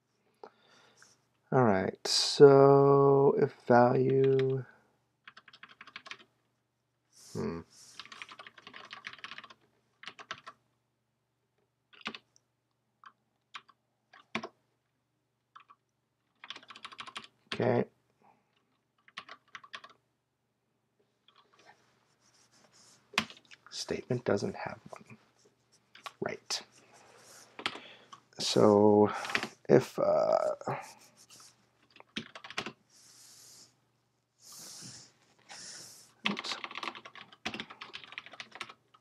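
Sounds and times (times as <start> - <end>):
computer keyboard typing: 4.2 - 4.6, 5.3 - 6.3, 8.0 - 10.6, 11.9 - 12.2, 13.0 - 14.6, 15.6 - 17.4, 19.0 - 20.0, 23.2 - 23.5, 27.6 - 27.8, 29.2 - 29.6, 31.8 - 32.8, 36.2 - 39.0.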